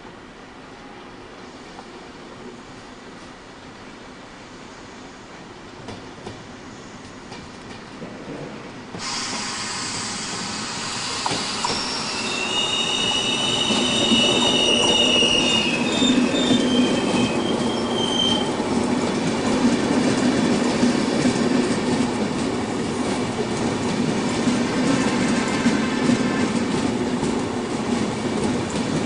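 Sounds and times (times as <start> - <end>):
train rumbling past: 0.0 - 29.0
train running gear squealing: 9.0 - 18.6.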